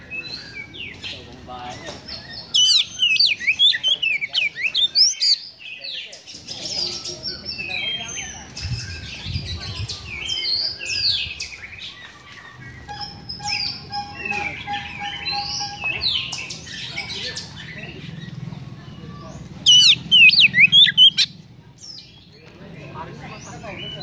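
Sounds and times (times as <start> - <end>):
bird singing whistles and chirps: 1.8 - 5.4, 12.8 - 17.4, 19.6 - 21.3.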